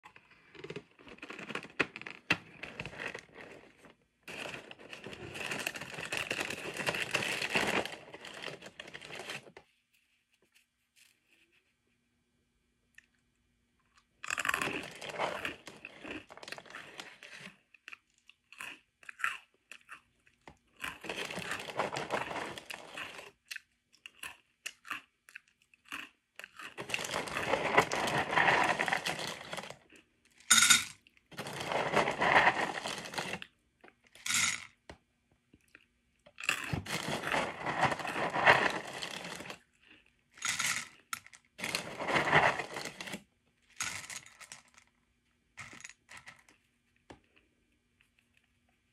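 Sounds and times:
plastic bag crinkling: 0:00.2 - 0:09.6, 0:14.5 - 0:17.5, 0:20.9 - 0:23.3, 0:26.6 - 0:29.9, 0:31.4 - 0:33.5, 0:36.6 - 0:39.6, 0:41.6 - 0:43.2
dry cereal rustling: 0:00.4 - 0:09.6, 0:14.3 - 0:17.5, 0:20.8 - 0:23.3, 0:26.6 - 0:29.8, 0:31.4 - 0:33.5, 0:36.5 - 0:39.6, 0:41.6 - 0:43.2.

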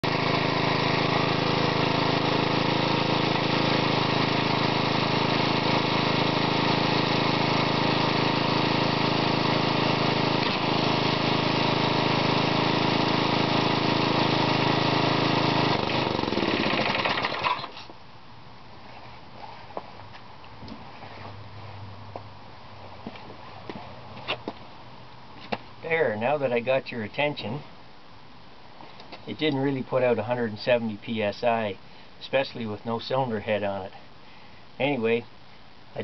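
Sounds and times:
lawnmower engine running: 0:00.0 - 0:17.9.

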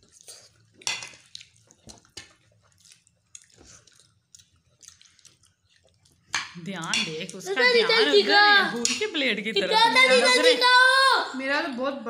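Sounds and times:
people chewing food: 0:00.0 - 0:09.1.

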